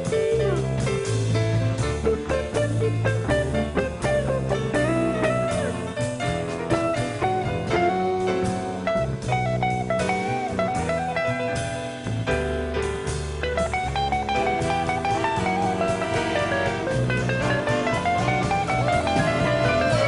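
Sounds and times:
drums: 0.0 - 20.0
jazz electric guitar solo: 0.0 - 20.0
upright bass: 0.0 - 20.0.

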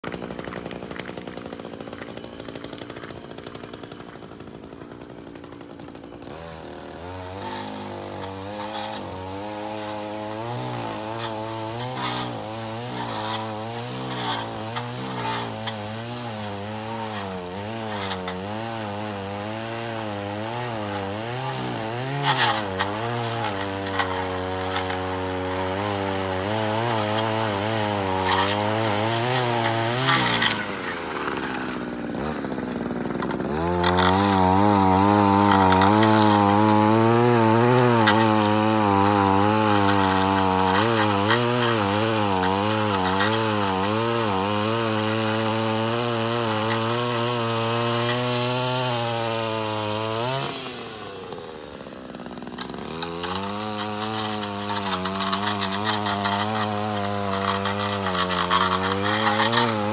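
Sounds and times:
string trimmer engine revving: 0.0 - 59.9
trimmer line crackling on grass: 7.2 - 44.2, 52.5 - 59.9.

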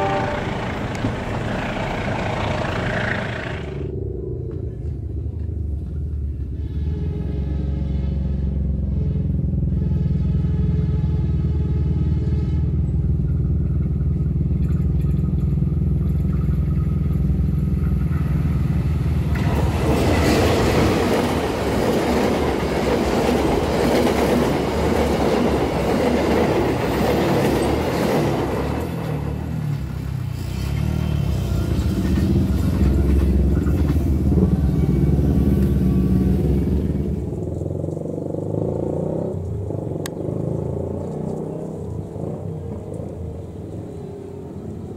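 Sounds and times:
diesel locomotive engine droning: 0.0 - 44.9
train wheels on rails: 14.6 - 38.1.

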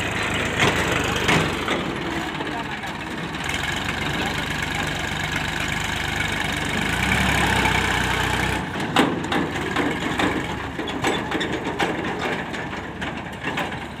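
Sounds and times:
tractor engine running: 0.0 - 14.0
crunching clicks and knocks: 0.2 - 2.2, 8.7 - 14.0.

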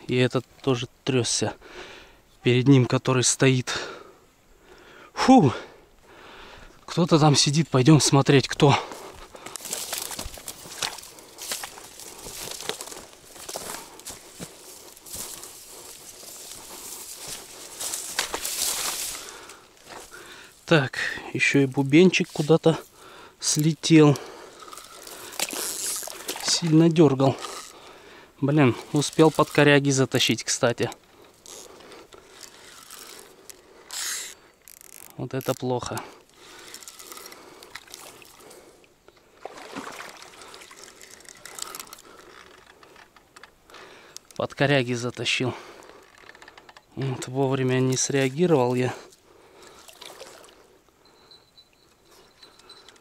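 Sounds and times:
footsteps through dry grass: 8.7 - 20.7, 21.4 - 23.0, 24.4 - 27.9, 28.6 - 30.6
quiet water at bank: 8.7 - 44.4, 47.6 - 53.0
fishing reel clicking: 27.4 - 27.8, 29.0 - 29.7, 31.4 - 38.1, 40.5 - 43.1.

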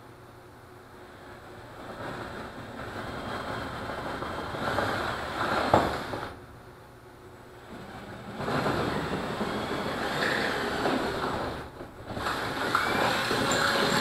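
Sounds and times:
cordless drill boring: 7.7 - 14.0.

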